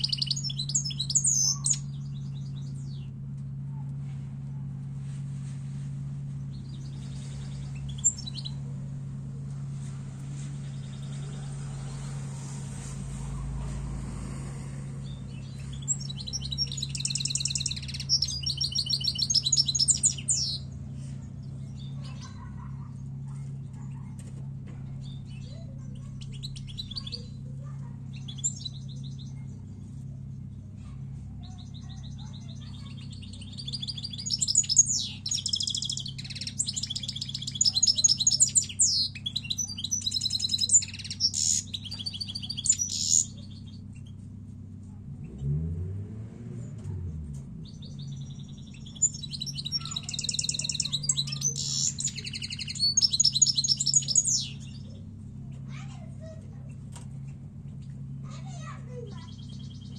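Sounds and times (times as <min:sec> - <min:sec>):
goldfinch twittering song: 0:00.0 - 0:03.2, 0:06.4 - 0:08.6, 0:15.0 - 0:22.5, 0:25.0 - 0:27.4, 0:28.1 - 0:30.6, 0:31.4 - 0:44.2, 0:47.6 - 0:55.1, 0:58.6 - 0:59.9
low hum: 0:01.8 - 0:17.1.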